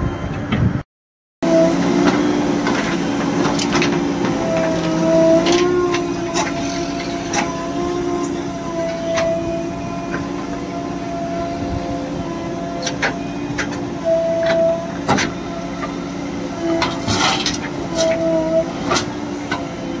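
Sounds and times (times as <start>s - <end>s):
diesel engine under load: 0.0s - 0.8s, 1.4s - 20.0s
hydraulic whine: 1.4s - 20.0s
metal clanks and knocks: 12.8s - 16.0s.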